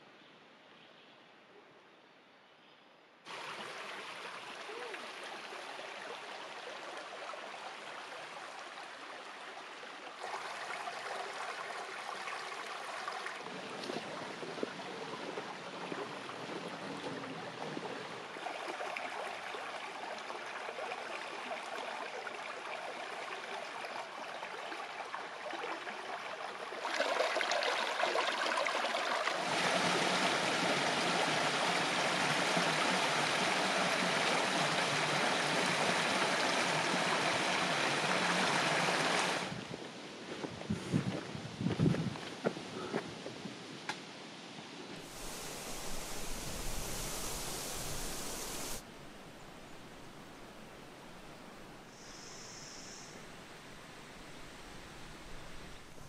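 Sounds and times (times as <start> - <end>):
creek water running: 3.3 - 39.8, 45.0 - 52.4.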